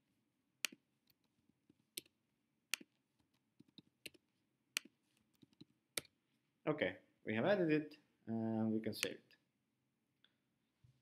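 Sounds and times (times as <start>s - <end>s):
keyboard and mouse clicks: 2.7s - 4.2s, 4.8s - 6.1s.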